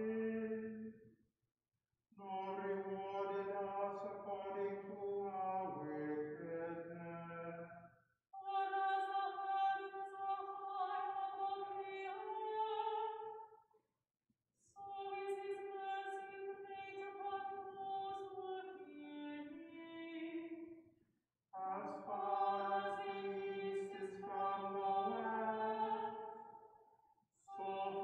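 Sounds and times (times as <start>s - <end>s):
person chanting: 0.0s - 0.8s, 2.2s - 7.7s, 8.4s - 13.3s, 14.8s - 20.5s, 21.6s - 26.4s, 27.5s - 28.0s.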